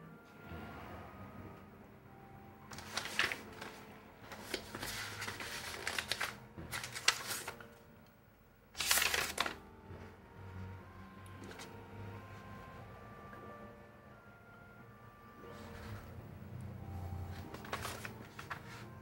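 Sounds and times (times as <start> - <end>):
paper rustling: 2.7 - 7.8, 8.8 - 9.6, 17.2 - 19.0.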